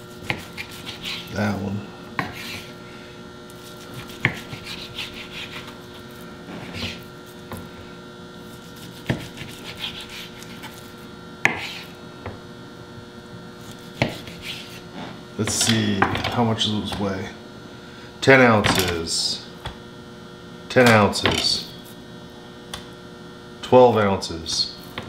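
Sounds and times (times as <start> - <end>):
knife sawing through meat: 0.0 - 1.4, 2.2 - 2.8, 3.5 - 7.4, 8.4 - 12.0, 13.6 - 14.9
steady hum: 0.0 - 25.0.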